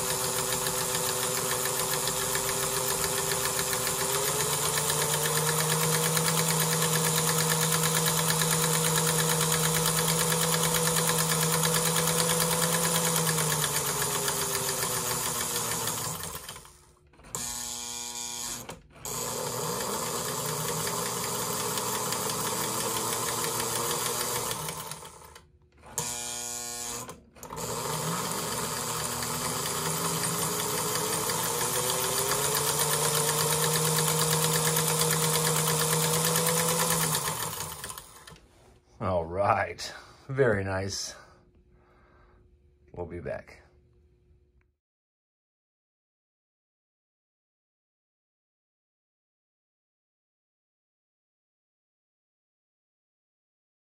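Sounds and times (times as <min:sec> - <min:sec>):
toy train motor whirring: 0:00.0 - 0:38.4.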